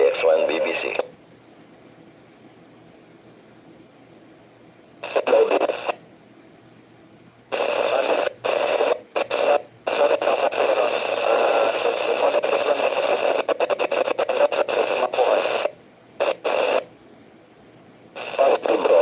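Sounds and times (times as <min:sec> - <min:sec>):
radio static: 0:00.0 - 0:01.1, 0:05.0 - 0:06.0, 0:07.5 - 0:16.9, 0:18.1 - 0:19.0
noisy radio transmission: 0:00.0 - 0:01.2, 0:05.0 - 0:06.0, 0:07.5 - 0:16.9, 0:18.1 - 0:19.0.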